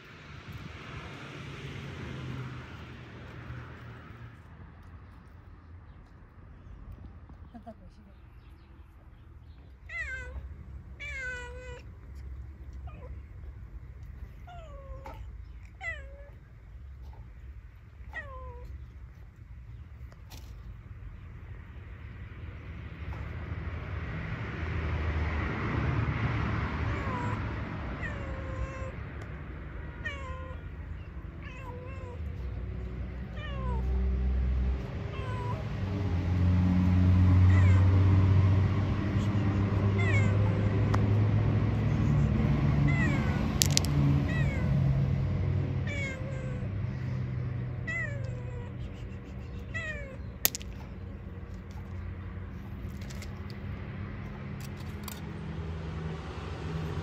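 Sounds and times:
cat meowing and yowling: 0:09.9 - 0:11.9, 0:12.8 - 0:13.2, 0:14.4 - 0:16.4, 0:18.0 - 0:18.8, 0:26.9 - 0:29.0, 0:30.0 - 0:32.5, 0:33.2 - 0:34.0, 0:35.1 - 0:35.8, 0:37.5 - 0:38.0, 0:39.1 - 0:40.8, 0:41.9 - 0:44.8, 0:45.8 - 0:46.8, 0:47.6 - 0:50.2.

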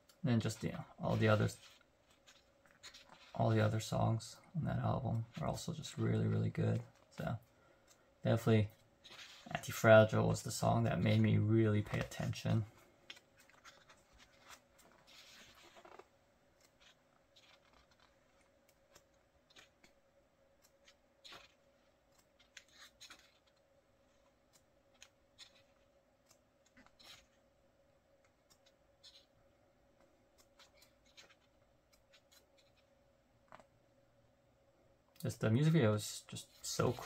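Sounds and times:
faint steady hum: 0:00.0 - 0:37.0
pages turning: 0:00.4 - 0:03.8, 0:11.9 - 0:16.1, 0:16.7 - 0:19.9, 0:22.4 - 0:23.6.

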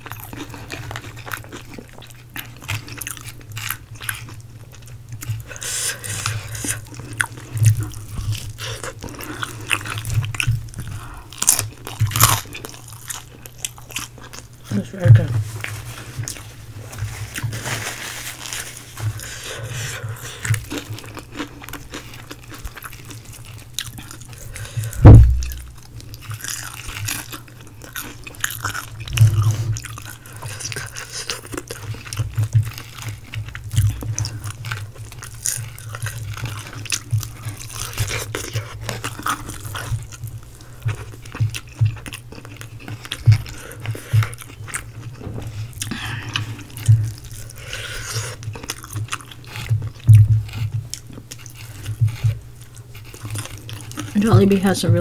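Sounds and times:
crunchy chewing of fried chicken: 0:00.0 - 0:55.0
loud low thump: 0:24.9 - 0:25.8.

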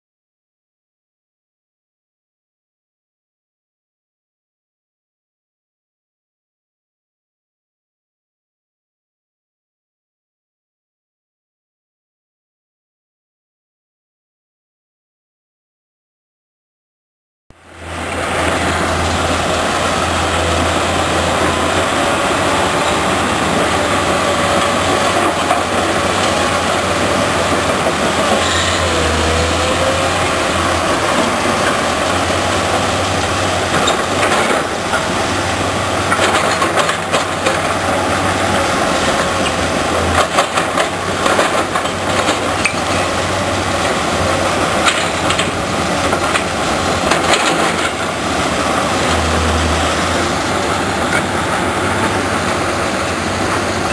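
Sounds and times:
diesel engines running: 0:17.6 - 0:53.9
rock crusher running: 0:17.8 - 0:53.9.

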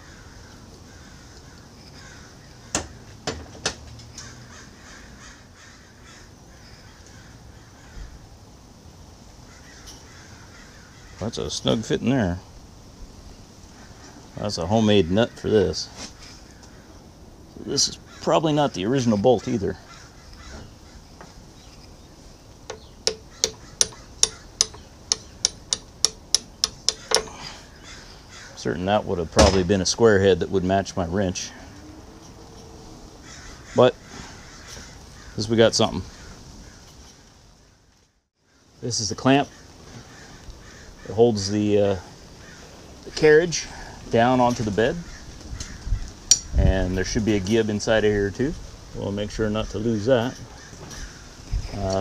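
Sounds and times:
birds calling: 0:00.0 - 0:03.3, 0:04.0 - 0:08.3, 0:09.4 - 0:12.0, 0:13.3 - 0:52.0
wrench clinking on metal: 0:22.7 - 0:27.4, 0:46.3 - 0:46.5.

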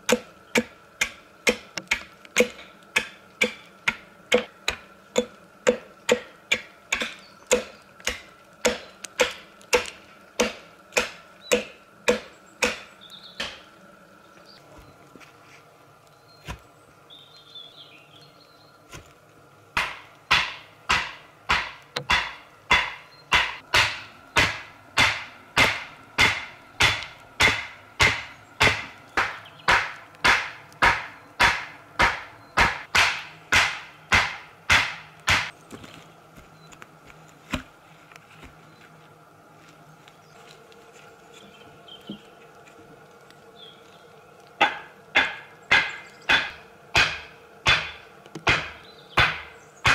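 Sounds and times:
axe knocking wooden stake: 0:00.1 - 0:13.6, 0:19.8 - 0:35.5, 0:44.6 - 0:49.9.

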